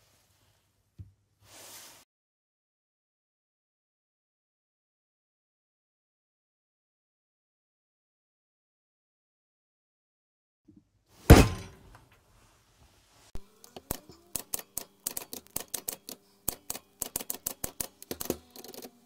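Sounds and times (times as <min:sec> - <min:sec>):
heavy thump: 0:11.3 - 0:11.8
typewriter keys striking: 0:14.3 - 0:19.0.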